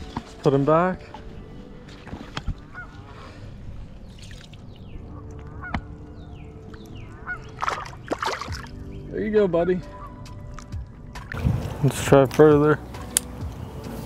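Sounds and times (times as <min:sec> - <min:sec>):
fish splashing in water: 0:04.0 - 0:04.8, 0:07.2 - 0:08.9.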